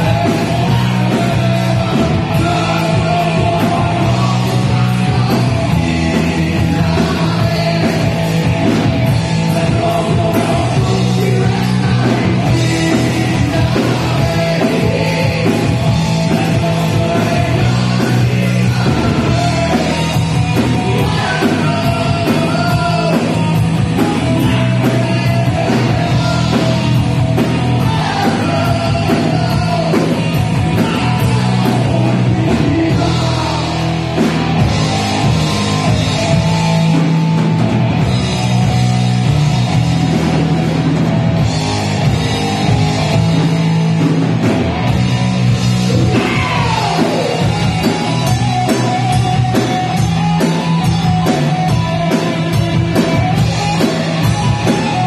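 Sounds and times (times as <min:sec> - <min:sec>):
person singing: 0:00.0 - 0:34.2, 0:45.9 - 0:50.0
drum kit: 0:00.0 - 0:55.0
electric guitars: 0:00.0 - 0:55.0.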